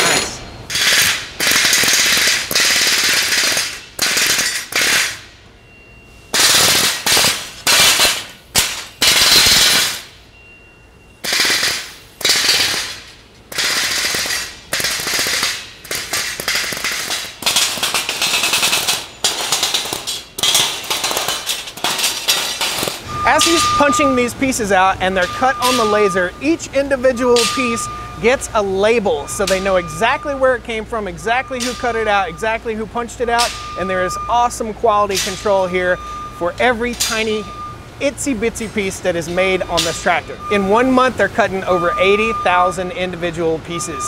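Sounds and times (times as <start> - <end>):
air hammer rattling on steel: 11.2 - 24.0.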